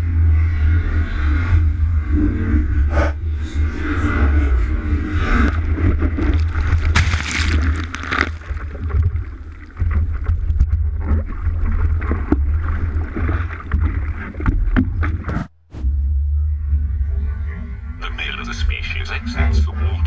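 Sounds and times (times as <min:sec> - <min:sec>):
low rumble of wind and water: 0:00.0 - 0:20.0
sea water splashing: 0:05.5 - 0:15.3.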